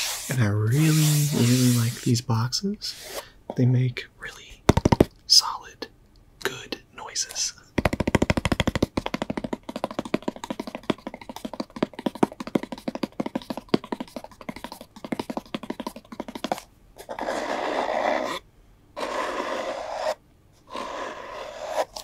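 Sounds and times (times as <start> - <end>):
scratching and rubbing on cardboard: 0.0 - 2.1, 8.1 - 18.4, 19.0 - 22.0
fingernails tapping on cardboard box: 4.7 - 5.1, 7.8 - 16.6.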